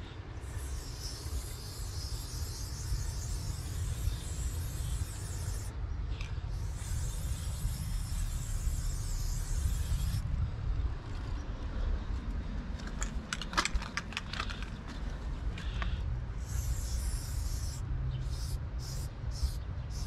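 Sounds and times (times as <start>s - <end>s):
spray paint can hissing: 0.4s - 10.2s, 15.6s - 20.0s
spray can rattling when shaken: 0.5s - 5.7s, 6.5s - 10.2s, 15.6s - 20.0s
low rumble: 7.9s - 16.4s.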